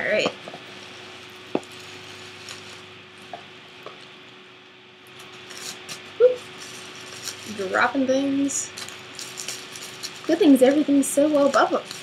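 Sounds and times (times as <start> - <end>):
plastic rustle: 0.7 - 2.9, 5.1 - 12.0.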